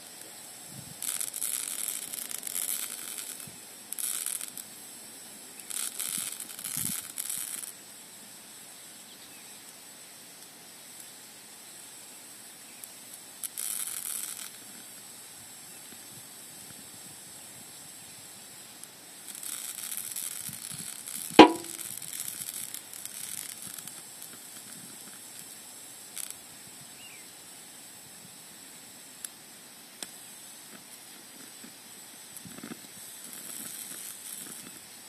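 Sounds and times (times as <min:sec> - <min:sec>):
stove hissing: 0:00.0 - 0:08.9, 0:14.5 - 0:35.0
rustling hiss: 0:00.0 - 0:35.0
sharp metallic clink: 0:21.4 - 0:21.9.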